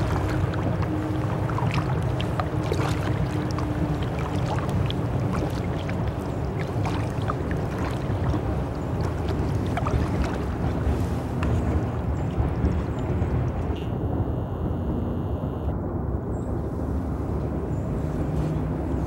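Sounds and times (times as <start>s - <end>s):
paddle drips and splashes: 0.0s - 13.9s
steady low rumble: 0.0s - 19.0s.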